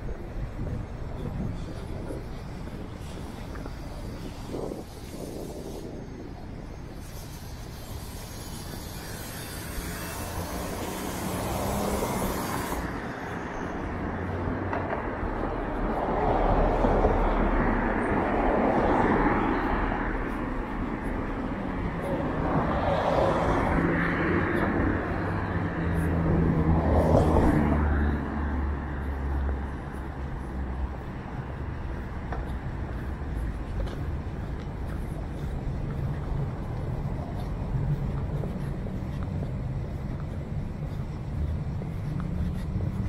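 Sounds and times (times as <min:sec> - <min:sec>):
cars passing close by: 0:00.0 - 0:43.0
low steady engine hum: 0:15.4 - 0:43.0.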